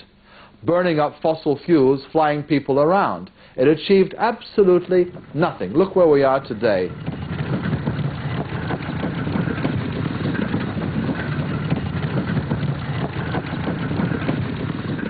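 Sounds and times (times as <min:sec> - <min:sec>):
vehicle engine running: 0:04.3 - 0:15.0
cart wheels rolling on wet road: 0:04.5 - 0:15.0.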